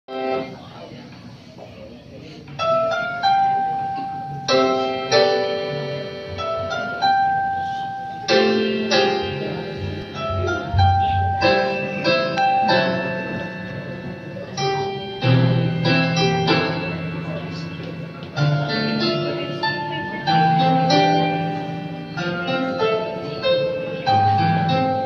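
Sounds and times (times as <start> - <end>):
piano playing slow hymn: 0.1 - 1.0, 2.2 - 25.0.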